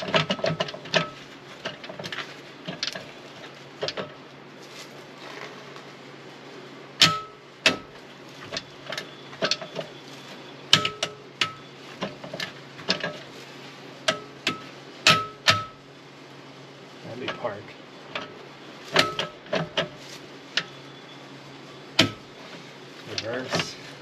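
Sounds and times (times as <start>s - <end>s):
metal clanks and knocks: 0.0s - 3.1s.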